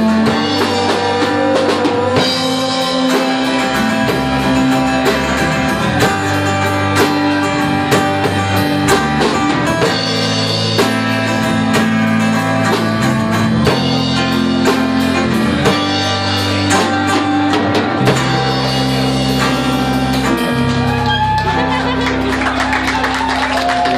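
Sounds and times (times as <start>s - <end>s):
drum kit steady beat: 0.0s - 23.9s
strummed guitars: 0.0s - 23.9s.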